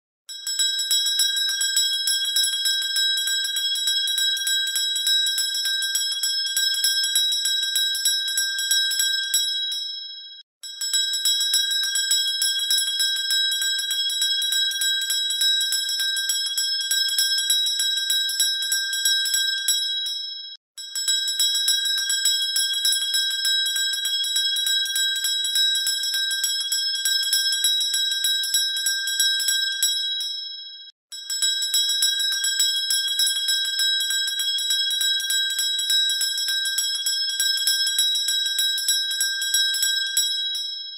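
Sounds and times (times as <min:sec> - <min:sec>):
high-pitched bell ringing rapidly: 0:00.3 - 0:09.9, 0:10.7 - 0:30.4, 0:31.1 - 0:40.9.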